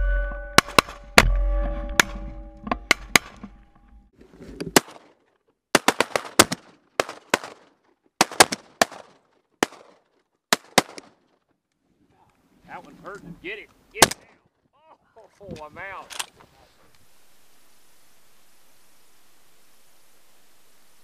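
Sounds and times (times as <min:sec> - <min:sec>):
shotguns firing: 0:05.7 - 0:07.6, 0:08.2 - 0:11.1.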